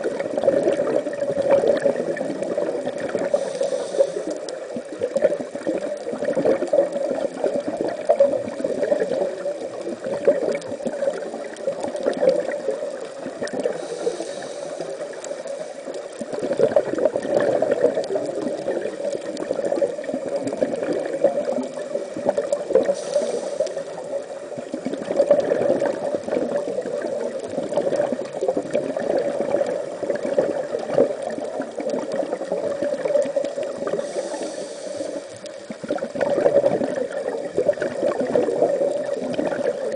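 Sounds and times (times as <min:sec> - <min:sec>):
gurgling crackling water: 0:00.0 - 0:39.9
short high hiss: 0:22.9 - 0:23.8.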